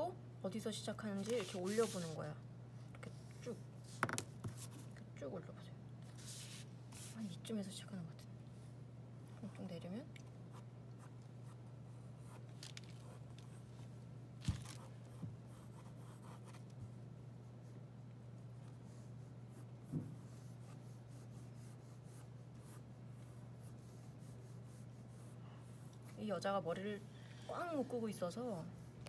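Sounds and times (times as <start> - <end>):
steady low hum: 0.0 - 29.0
pencil scratching on paper: 1.2 - 2.2, 15.5 - 17.0, 17.6 - 26.5.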